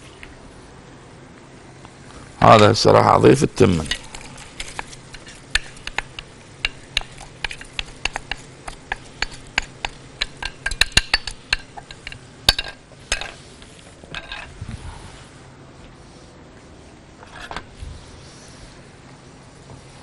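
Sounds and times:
spoon scraping metal pot: 0:03.8 - 0:13.4.

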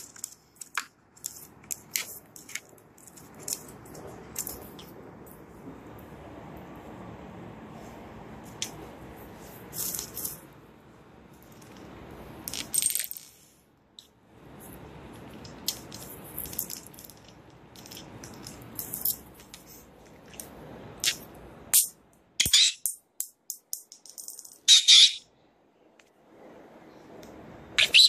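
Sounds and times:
marble rattling on stone countertop: 0:11.4 - 0:13.4, 0:15.4 - 0:19.7, 0:22.8 - 0:24.7.

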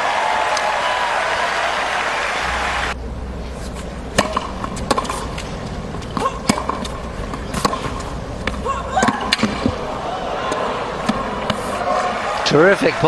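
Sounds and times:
crowd noise: 0:00.0 - 0:13.0
tennis ball bouncing on hard court: 0:04.1 - 0:09.9
tennis ball struck by rackets: 0:04.1 - 0:09.9.

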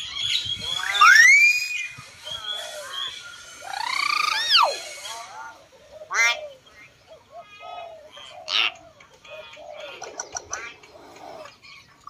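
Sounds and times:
myna bird calls and whistles: 0:00.0 - 0:11.6
faint low bird calls: 0:00.0 - 0:12.0
sharp bird clicks: 0:08.7 - 0:11.6.

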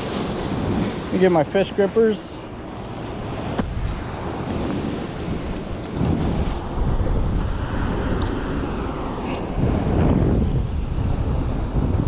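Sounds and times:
surf washing against rocks: 0:00.0 - 0:12.0
wind buffeting microphone: 0:02.6 - 0:12.0.

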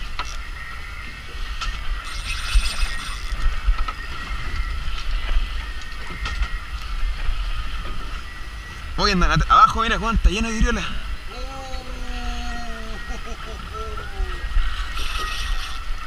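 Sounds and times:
wind on microphone: 0:00.0 - 0:16.0
fishing reel whirring and clicking: 0:01.5 - 0:05.1, 0:14.0 - 0:16.0.

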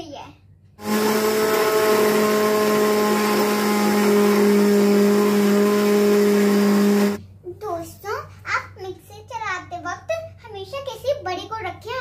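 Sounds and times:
mixer grinder motor whine: 0:00.8 - 0:07.2.

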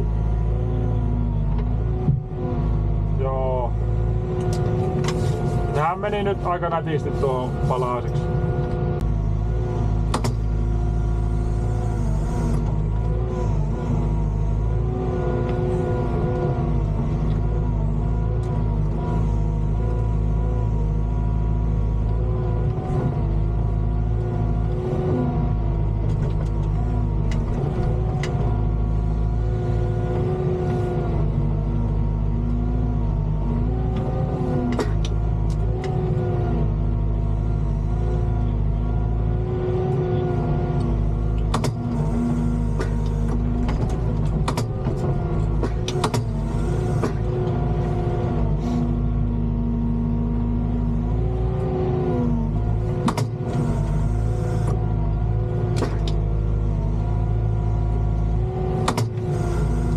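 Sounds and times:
diesel engine running: 0:00.0 - 0:59.9
hydraulic whine: 0:03.8 - 0:23.4, 0:32.4 - 0:49.2, 0:51.0 - 0:59.9.

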